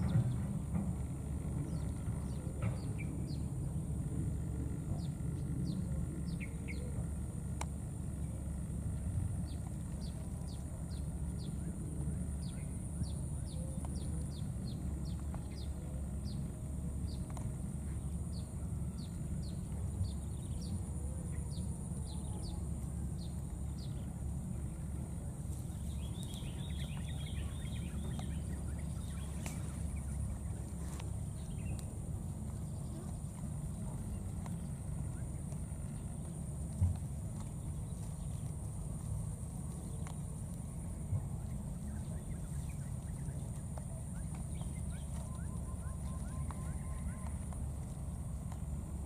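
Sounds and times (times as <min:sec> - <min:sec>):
steady low rumble: 0:00.0 - 0:49.0
warbling bird calls: 0:41.3 - 0:47.7.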